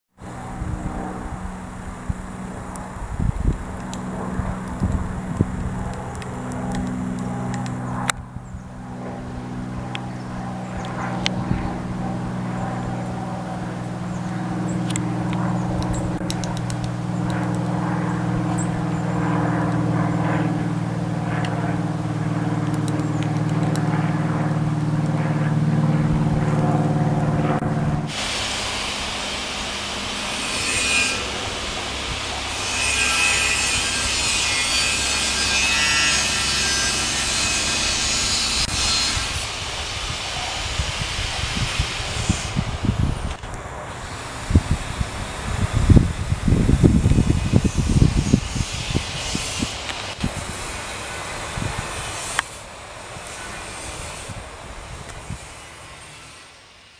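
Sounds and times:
low mechanical hum: 0.2 - 56.9
steady high hiss: 28.1 - 35.6, 38.6 - 47.3.

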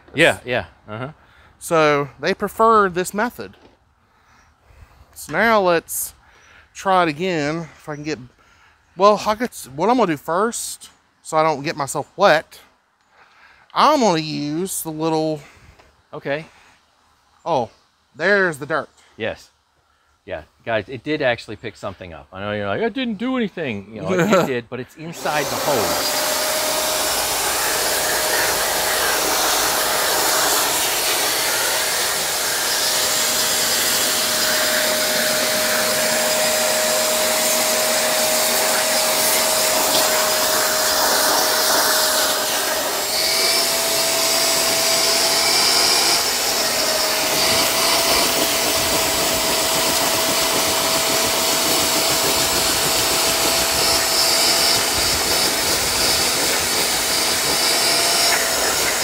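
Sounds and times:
suction hiss: 25.2 - 59.0
vacuum motor whining: 25.2 - 59.0.

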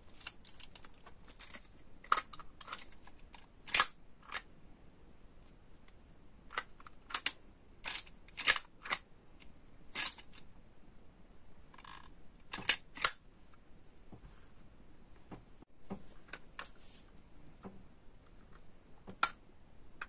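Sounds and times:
hard plastic clicks and snaps: 0.1 - 4.5, 5.4 - 10.5, 11.8 - 13.2, 17.6 - 19.4
scraping rustle: 15.8 - 17.2.

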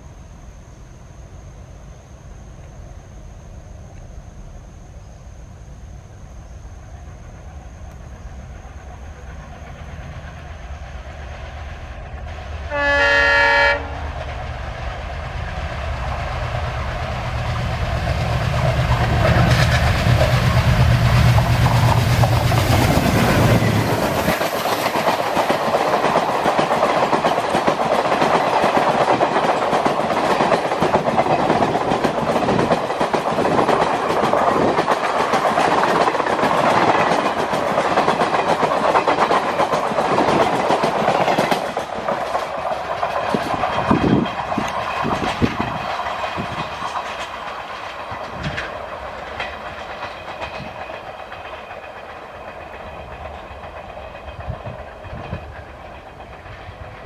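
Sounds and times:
diesel locomotive engine rumble: 0.0 - 57.0
passenger coaches clickety-clack: 6.9 - 57.0
train horn blast: 12.7 - 14.1.

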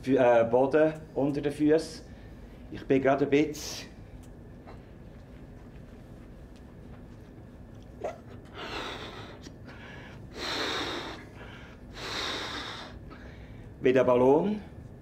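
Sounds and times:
man blowing up balloon: 10.4 - 11.3, 12.0 - 13.0.

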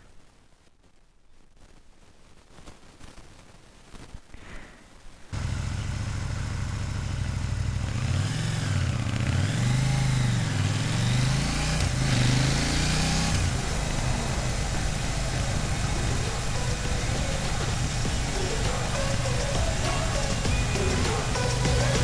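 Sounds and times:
motorcycle engine revving: 5.3 - 22.0.

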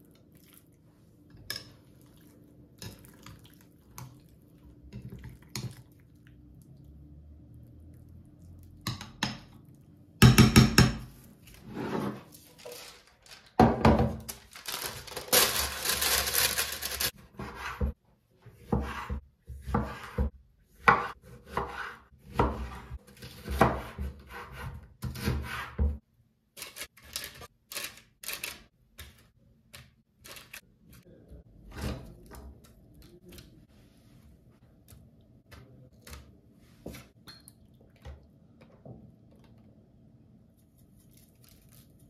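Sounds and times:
rustling: 11.4 - 13.6, 14.2 - 17.1.

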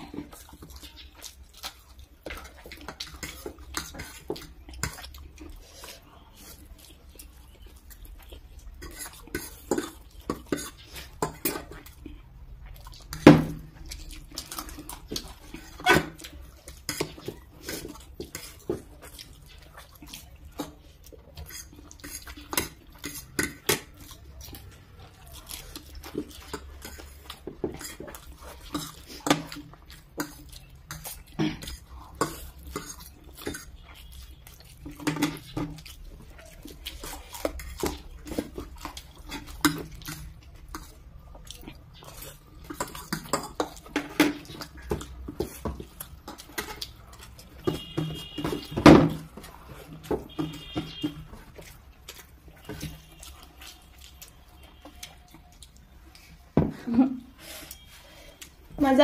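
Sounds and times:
people eating noodles: 0.0 - 59.0.

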